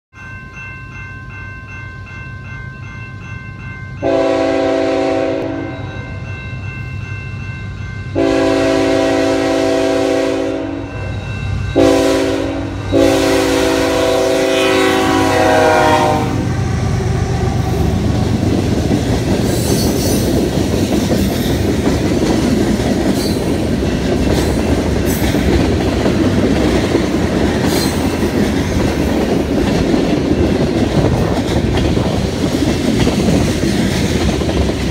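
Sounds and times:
bell ringing: 0:00.1 - 0:04.2, 0:05.5 - 0:08.4, 0:10.8 - 0:12.0
train cars rumbling and clacking: 0:00.3 - 0:34.9
locomotive horn: 0:04.0 - 0:06.1, 0:08.2 - 0:10.9, 0:11.8 - 0:16.6
diesel locomotive rumble: 0:08.2 - 0:34.9.

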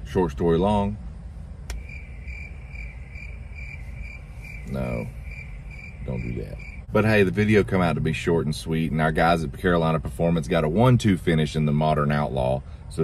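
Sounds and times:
low hum: 0:01.0 - 0:07.5
cricket chirping: 0:01.7 - 0:07.0.

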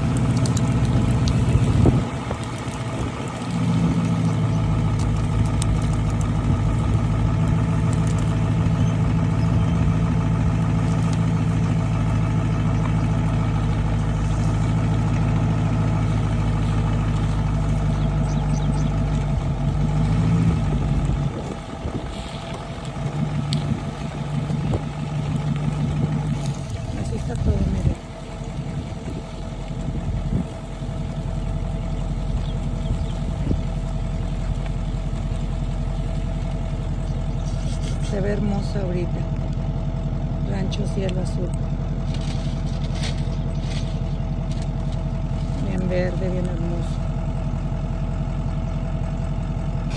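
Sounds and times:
engine running steadily: 0:00.0 - 0:49.9.

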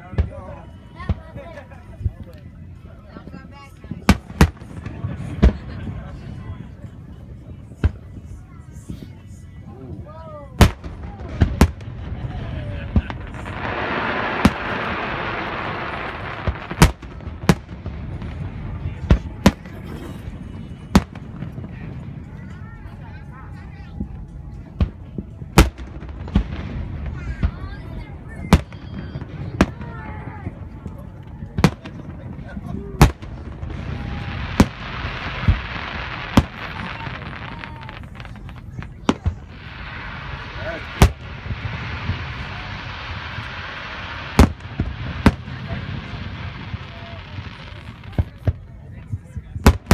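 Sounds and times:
fireworks bursting with sharp bangs: 0:03.8 - 0:08.2, 0:10.6 - 0:23.0, 0:24.7 - 0:49.9
fireworks hiss: 0:13.0 - 0:18.6, 0:33.2 - 0:48.3
steady hiss: 0:39.4 - 0:48.1.

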